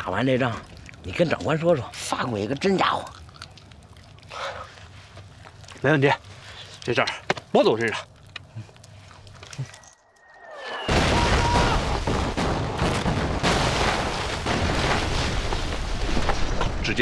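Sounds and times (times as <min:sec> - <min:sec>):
loud explosion: 0:10.9 - 0:15.7.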